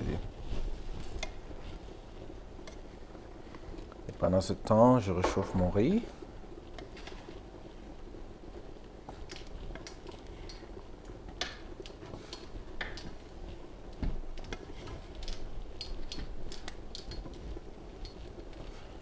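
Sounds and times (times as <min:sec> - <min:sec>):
steady low hum: 0:00.0 - 0:19.0
wooden spoon scraping a pan: 0:11.4 - 0:19.0.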